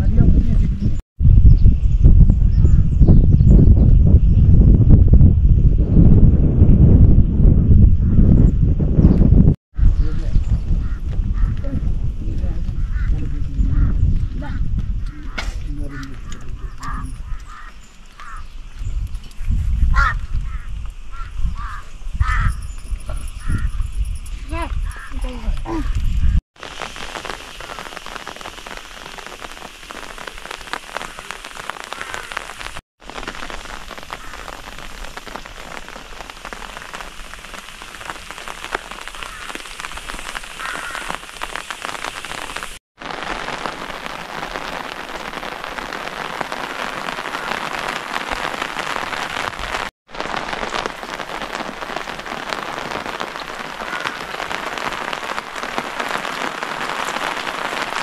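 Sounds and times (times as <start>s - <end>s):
steady rain falling: 24.9s - 58.0s.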